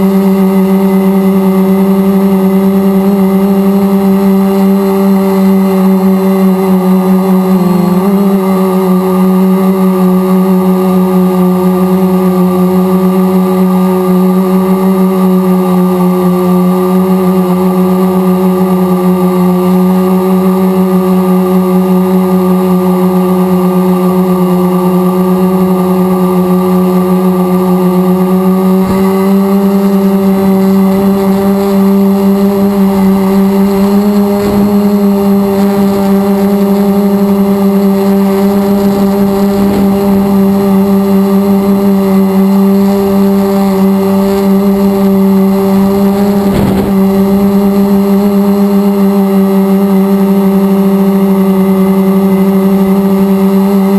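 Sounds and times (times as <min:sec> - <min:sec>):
drone motors humming: 0:00.0 - 0:53.9
faint short whooshes: 0:46.3 - 0:48.2.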